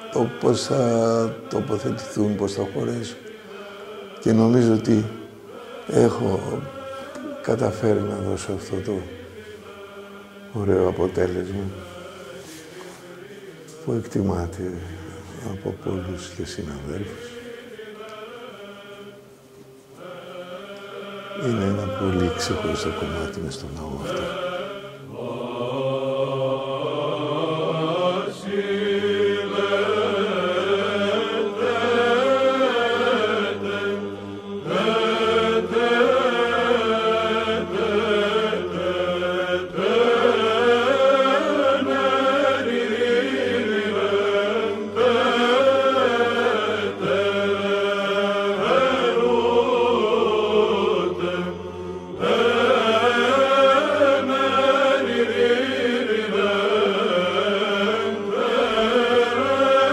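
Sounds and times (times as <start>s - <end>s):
chanted melody: 20.0s - 59.9s.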